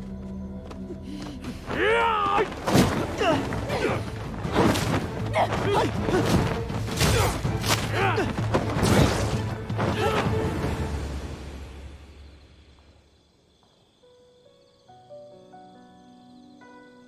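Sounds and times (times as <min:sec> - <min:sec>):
dramatic music score: 0:00.0 - 0:12.5
fight thuds and blows: 0:05.7 - 0:10.3
shouts and grunts: 0:07.0 - 0:08.4.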